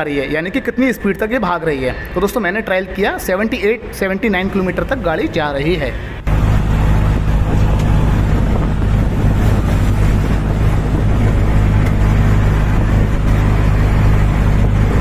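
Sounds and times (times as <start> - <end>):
road noise: 0.0 - 15.0
auto rickshaw engine humming: 5.8 - 15.0.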